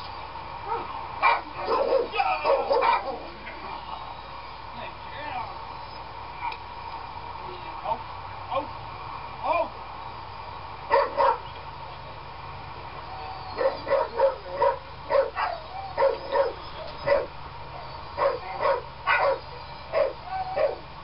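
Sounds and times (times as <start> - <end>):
dog barking: 0.7 - 3.3, 10.9 - 11.5, 13.5 - 17.4, 18.2 - 20.8.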